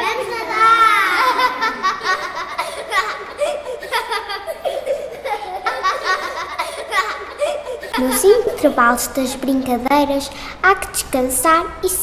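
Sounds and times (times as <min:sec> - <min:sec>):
children laughing and giggling: 0:00.0 - 0:09.0.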